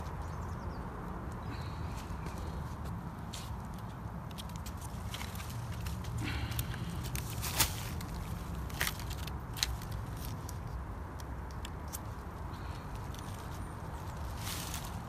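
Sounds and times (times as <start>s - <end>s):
twigs and leaves crackling: 0.0s - 15.0s
branches snapping: 3.4s - 15.0s.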